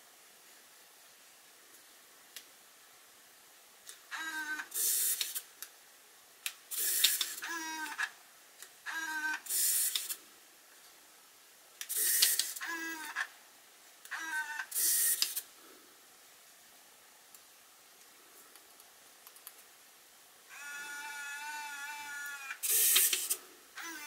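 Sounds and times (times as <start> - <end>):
camera zoom lens whirring: 4.1 - 5.4, 20.5 - 24.0.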